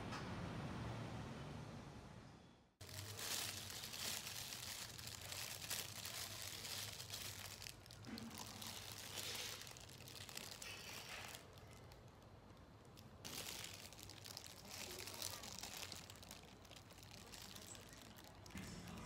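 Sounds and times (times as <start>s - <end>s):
plastic bag rustling and crinkling: 2.8s - 18.6s.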